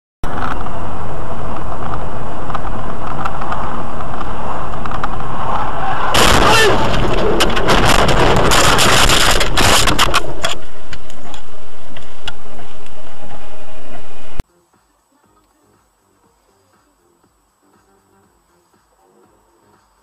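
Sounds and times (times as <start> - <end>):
car driving on road: 0.2 - 14.4
car crashing through brush: 5.1 - 10.9.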